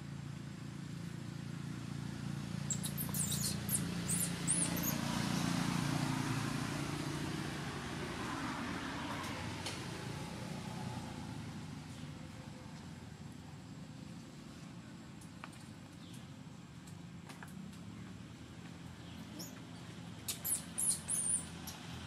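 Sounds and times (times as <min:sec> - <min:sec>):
vehicle engine humming: 0:00.0 - 0:22.0
high chirps: 0:02.7 - 0:05.0, 0:20.3 - 0:21.6.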